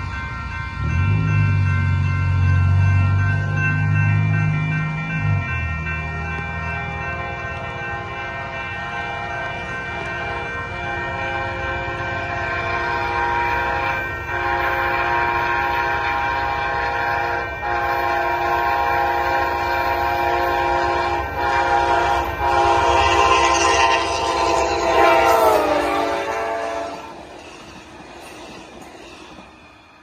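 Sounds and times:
passing train rumble: 0.0s - 30.0s
locomotive air horn blasts: 10.8s - 27.2s.

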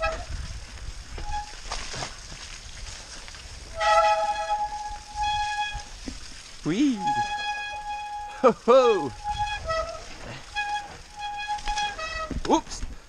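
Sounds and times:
bike rattling over rough ground: 0.0s - 13.0s
bike brakes squealing: 1.2s - 1.6s, 3.7s - 6.0s, 6.8s - 12.5s.

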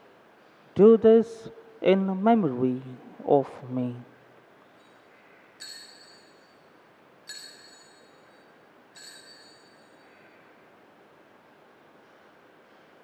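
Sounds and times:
altar bells ringing: 4.8s - 10.7s.

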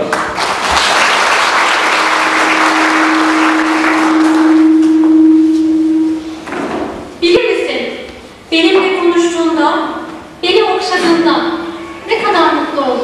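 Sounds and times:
audience applauding: 0.0s - 5.1s
steady tone: 1.8s - 7.2s.

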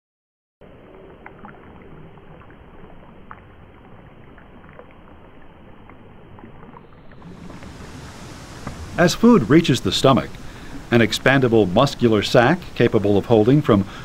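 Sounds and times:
low watery rumble: 0.6s - 14.0s.

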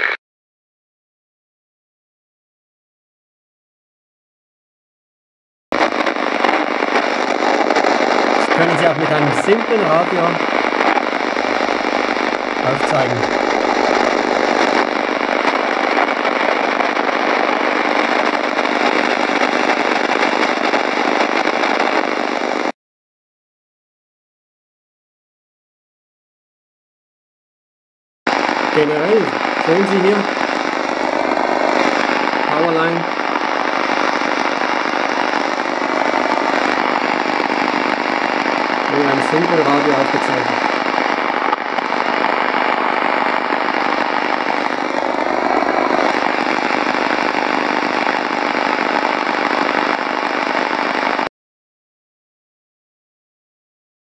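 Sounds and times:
radio static with crackle: 0.0s - 0.2s, 5.7s - 22.8s, 28.3s - 51.3s.

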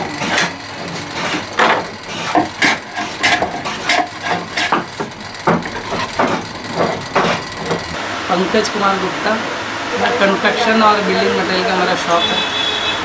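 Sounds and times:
wooden knocks and clatter: 0.0s - 8.0s.

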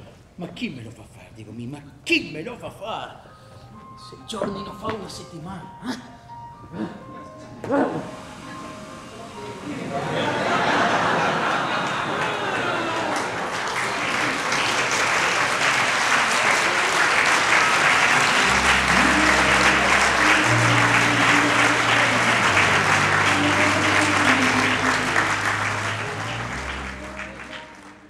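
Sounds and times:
audience applauding: 9.0s - 28.0s
low bass music: 18.4s - 28.0s.

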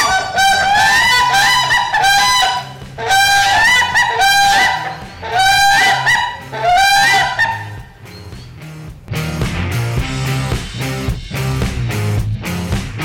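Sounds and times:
waterfowl calling: 0.0s - 8.6s.

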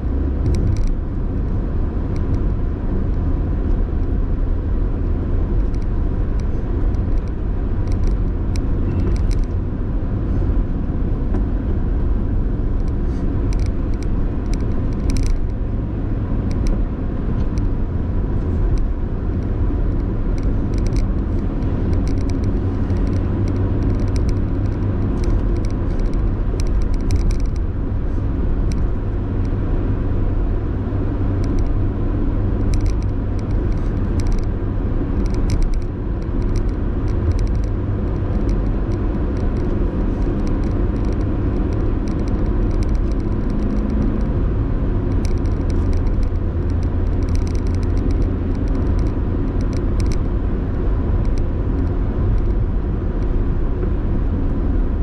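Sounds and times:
car engine rumble: 0.0s - 55.0s
road noise: 0.0s - 55.0s
light clicks: 5.6s - 9.6s, 12.8s - 15.6s, 20.0s - 27.6s, 35.2s - 44.1s, 45.1s - 50.3s.

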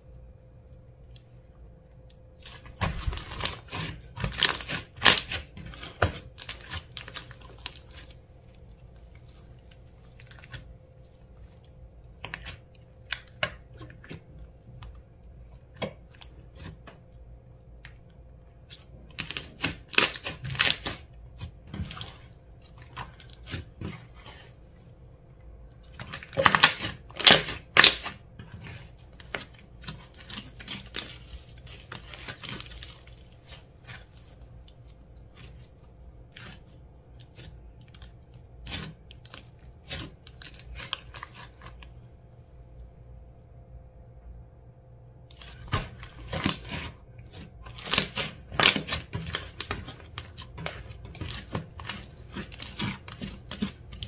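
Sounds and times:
sharp wet clicks and crackles: 0.0s - 16.4s, 17.8s - 24.3s, 25.3s - 42.0s
hands squishing slime: 2.3s - 17.0s, 17.8s - 42.0s, 45.3s - 54.0s.

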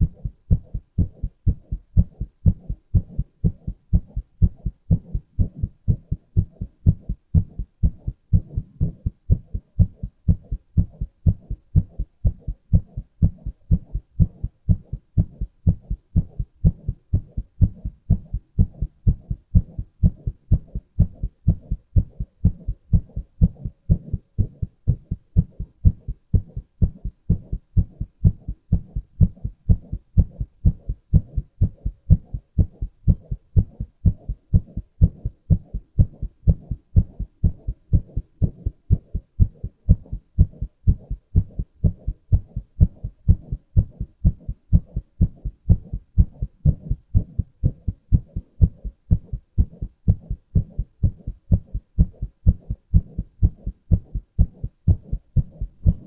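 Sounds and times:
heartbeat thumps: 0.0s - 56.0s.

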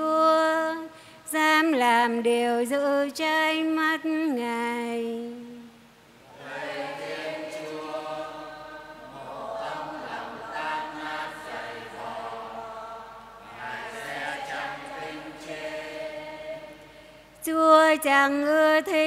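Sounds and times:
choir and congregation singing: 6.2s - 18.2s.

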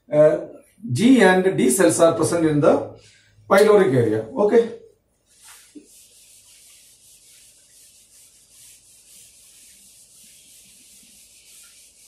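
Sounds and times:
duster rubbing on whiteboard: 5.2s - 12.0s.

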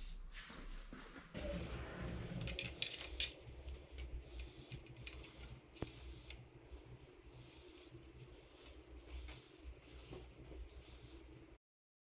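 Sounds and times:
low hum: 0.0s - 11.6s
soft rustling scrapes: 3.0s - 11.6s.

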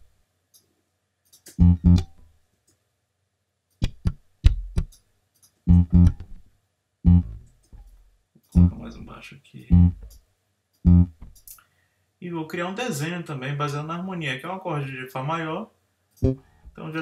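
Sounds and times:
electric bass plucked notes: 1.6s - 2.2s, 5.7s - 6.4s, 7.1s - 7.5s, 8.6s - 8.9s, 9.7s - 10.1s, 10.9s - 11.3s, 16.2s - 16.4s.

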